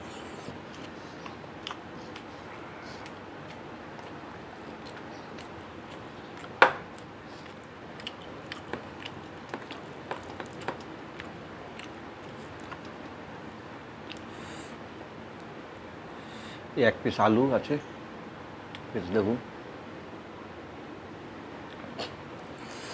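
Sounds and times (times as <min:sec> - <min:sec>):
chewing: 0:00.0 - 0:13.2, 0:14.0 - 0:14.3.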